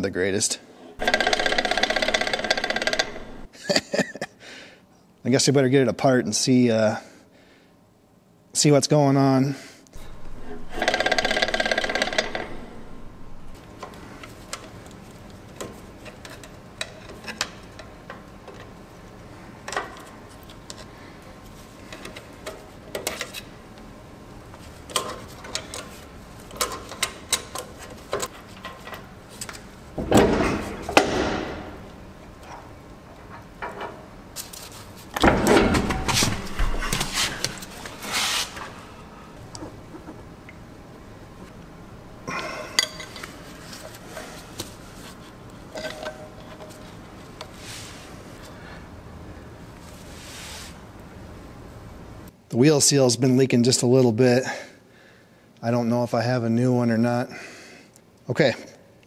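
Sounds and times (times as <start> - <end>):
metal scraping and knocking: 1.0 - 3.5, 10.0 - 13.6.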